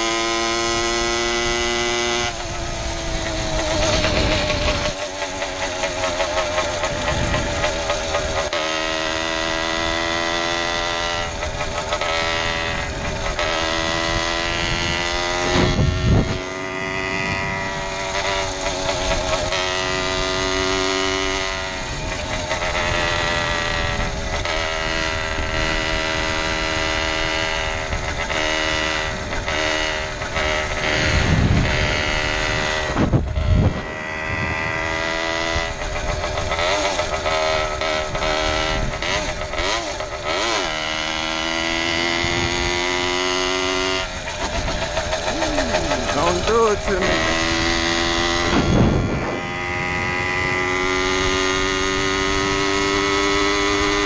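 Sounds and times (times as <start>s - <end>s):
two-stroke engine running: 0.0s - 54.0s
wind buffeting microphone: 1.4s - 8.6s, 11.1s - 40.4s, 41.0s - 54.0s.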